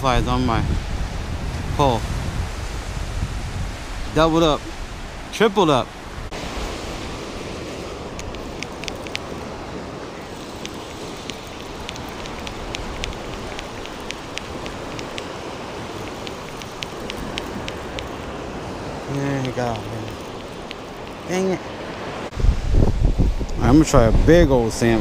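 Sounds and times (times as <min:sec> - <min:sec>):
ocean surf: 0:00.0 - 0:25.0
wind: 0:00.0 - 0:25.0
small sharp clicks: 0:08.1 - 0:09.5, 0:10.5 - 0:15.4, 0:16.0 - 0:18.2, 0:19.4 - 0:21.2.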